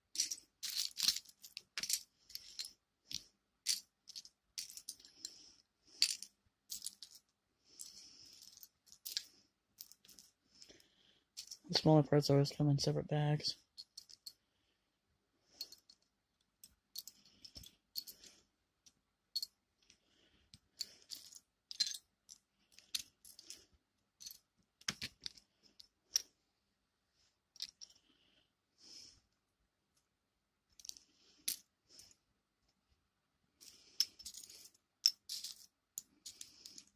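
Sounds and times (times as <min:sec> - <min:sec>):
plastic bricks clicking and clattering: 0:00.1 - 0:05.1, 0:24.2 - 0:26.2.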